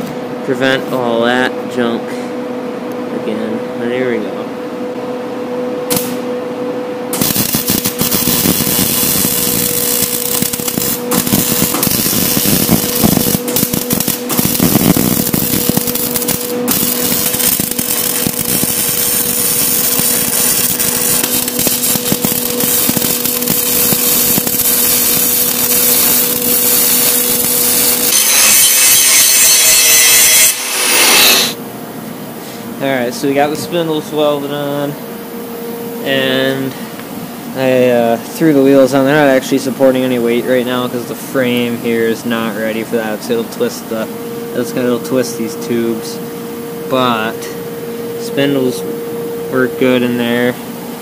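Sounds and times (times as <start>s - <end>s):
low hum: 4.4s - 29.2s
welder crackling: 7.1s - 31.6s
angle grinder grinding steel: 7.3s - 31.6s.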